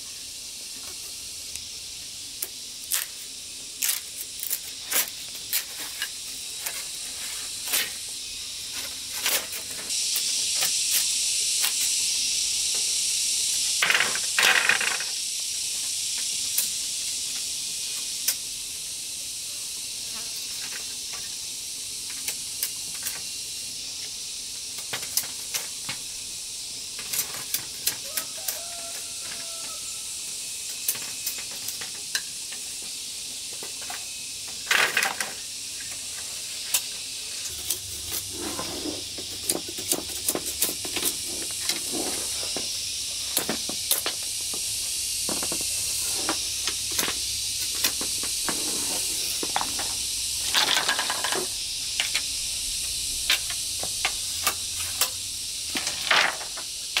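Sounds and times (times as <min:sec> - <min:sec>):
steady high hiss: 0:00.0 - 0:57.0
machete scraping bamboo: 0:37.5 - 0:42.7.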